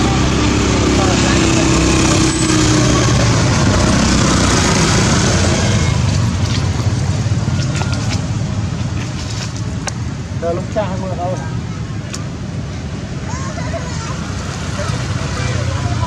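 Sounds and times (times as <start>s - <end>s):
vehicle engine running: 0.0s - 10.2s.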